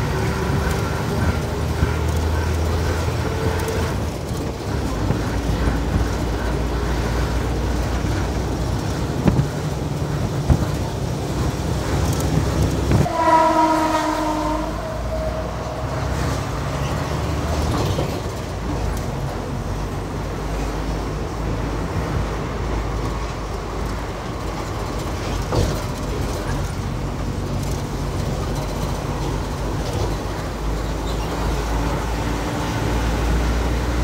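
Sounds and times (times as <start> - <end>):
bus engine and road noise: 0.0 - 34.0
bus horn: 2.8 - 4.1, 12.9 - 16.9.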